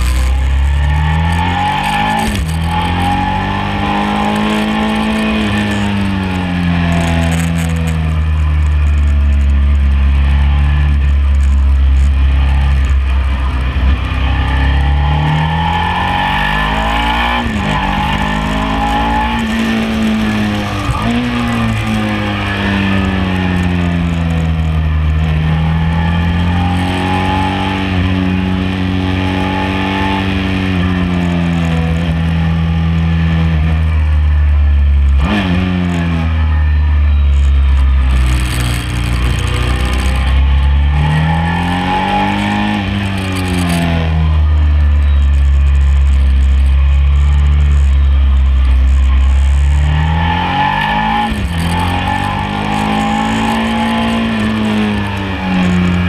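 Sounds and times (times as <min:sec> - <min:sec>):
motorcycle engine revving: 0:00.0 - 0:56.0
quick gear changes: 0:34.7 - 0:56.0.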